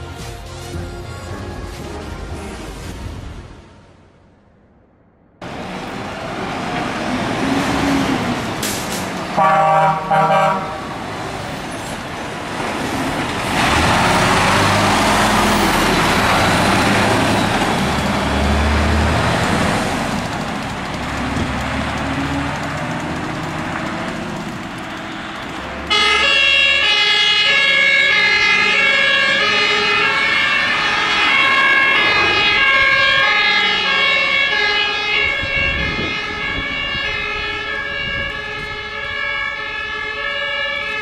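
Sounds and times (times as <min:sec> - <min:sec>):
truck engine running: 0:05.4 - 0:27.6
two-tone siren: 0:09.4 - 0:10.9, 0:24.9 - 0:41.0.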